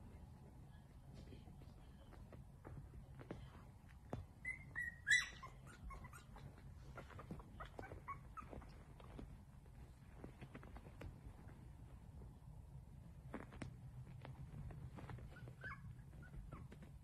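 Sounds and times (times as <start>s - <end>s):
clicks and rustles of nursing puppies: 0.0s - 17.0s
puppies squeaking and whimpering: 4.4s - 9.2s, 15.1s - 16.9s.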